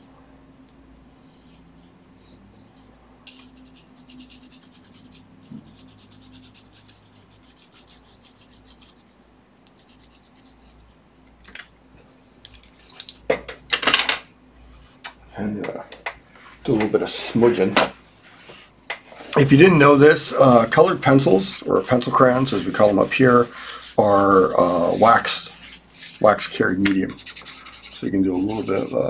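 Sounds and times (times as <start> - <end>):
colored pencil scratching paper: 1.8 - 9.2, 9.8 - 10.8, 21.9 - 29.0.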